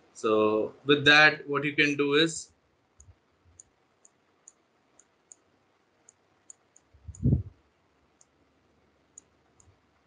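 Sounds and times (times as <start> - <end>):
computer mouse clicking: 3.0 - 7.5, 8.1 - 8.4, 9.1 - 9.8.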